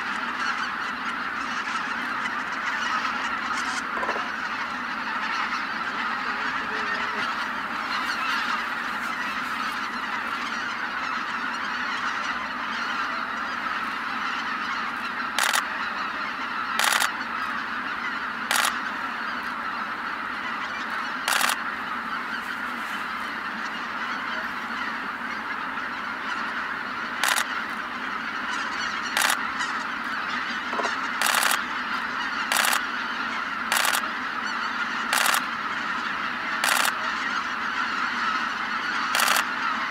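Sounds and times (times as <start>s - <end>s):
geese honking: 0.0s - 39.9s
loud bursts of noise: 3.8s - 4.3s, 15.4s - 15.7s, 16.8s - 17.1s, 18.5s - 18.8s, 21.2s - 21.6s, 27.2s - 27.5s, 29.2s - 29.4s, 30.7s - 31.7s, 32.5s - 32.8s, 33.7s - 34.0s, 36.6s - 37.0s, 39.1s - 39.5s.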